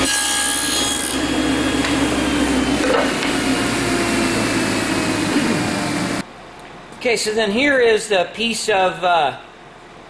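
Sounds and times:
table saw cutting wood: 0.0 - 6.2
table saw motor hum: 0.0 - 6.2.

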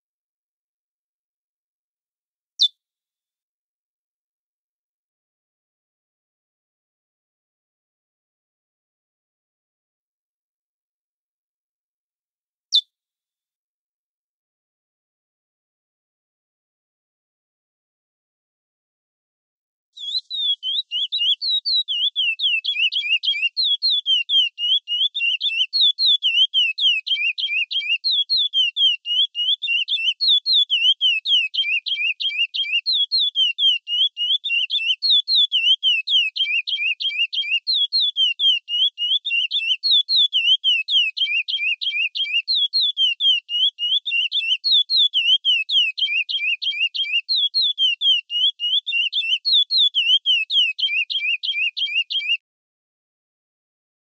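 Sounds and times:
bird singing whistled notes: 20.0 - 52.4.

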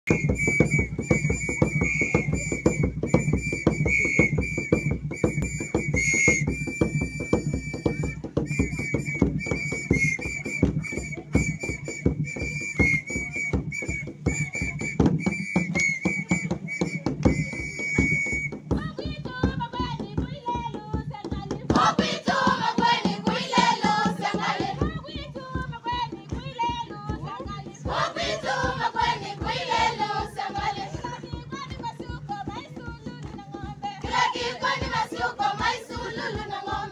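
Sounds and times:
whistle short rapid blasts: 0.0 - 18.8
fast steady drumbeats: 0.0 - 36.9
group singing: 21.7 - 25.4, 27.8 - 31.5, 33.6 - 36.9.

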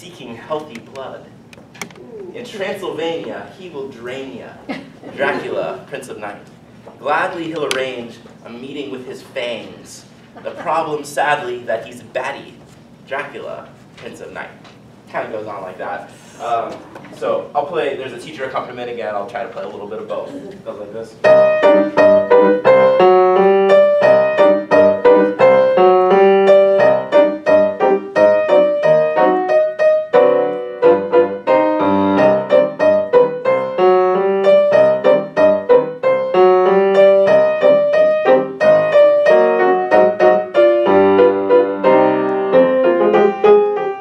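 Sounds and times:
grand piano playing: 21.2 - 44.0.

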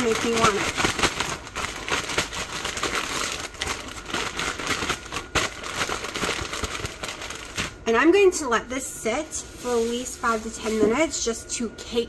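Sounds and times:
plastic bag crinkling: 0.0 - 7.9.

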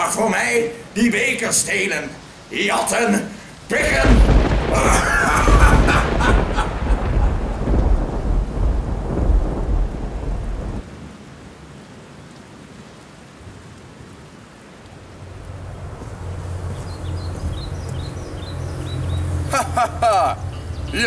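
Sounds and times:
rain: 0.0 - 21.0
low rumble of thunder: 3.7 - 10.9, 15.2 - 19.9.

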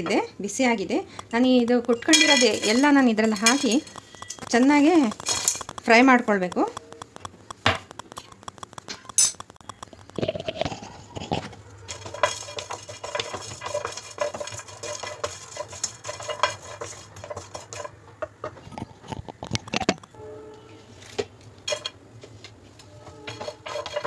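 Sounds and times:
spices rattling in a dry pan: 1.2 - 10.9, 11.9 - 18.6, 21.7 - 22.0, 23.3 - 24.0
wooden spatula scraping a pan: 10.3 - 18.6, 22.9 - 24.0.

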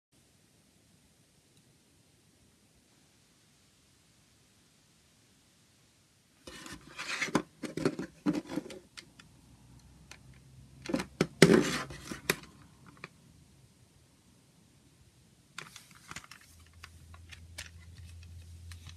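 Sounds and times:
plastic case clicks and scrapes: 6.5 - 9.3, 10.8 - 13.1.

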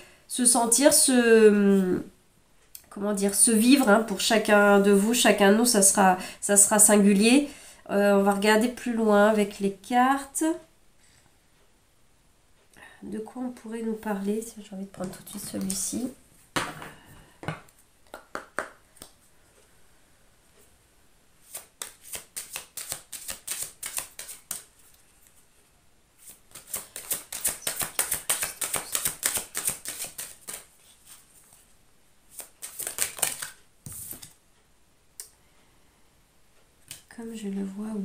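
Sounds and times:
cards being shuffled: 15.0 - 16.0, 21.4 - 25.0, 26.2 - 31.6, 32.3 - 34.4
cards clicking: 21.5 - 24.7, 26.5 - 30.6, 32.4 - 34.4.

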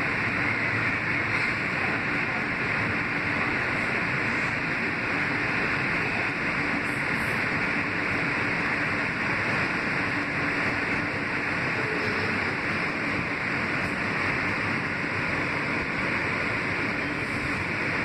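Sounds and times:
wheels rushing on rail: 0.0 - 18.0.

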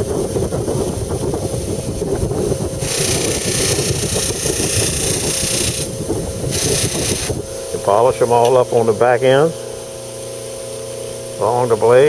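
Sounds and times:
bench buffer motor running: 0.0 - 12.0
hiss of blade polishing: 2.8 - 5.9, 6.5 - 7.4.

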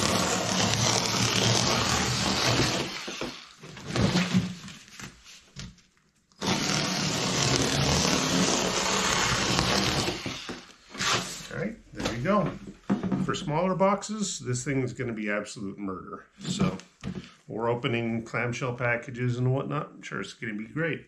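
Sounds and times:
power cutter cutting cardboard: 0.0 - 4.5, 6.4 - 11.4.

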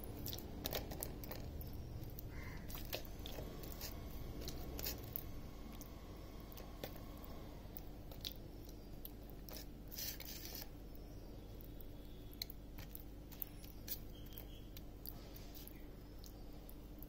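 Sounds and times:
wet squishing of paste on fish: 0.0 - 10.8
steady low hum: 0.0 - 17.0.

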